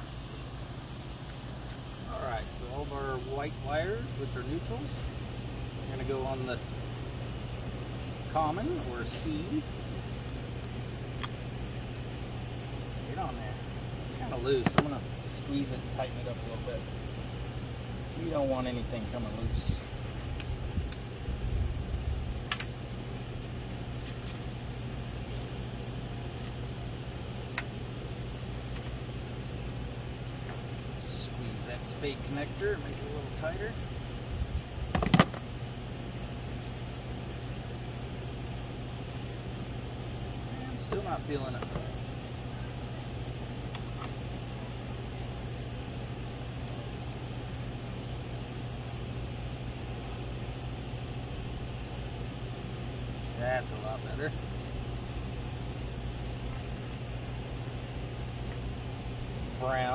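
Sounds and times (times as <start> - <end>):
faint pulsing high hiss: 0.0 - 34.9
steady low hum: 0.0 - 59.9
clicks of wire connectors: 22.5 - 22.7, 34.9 - 35.4
wire connectors clicking: 22.5 - 22.7.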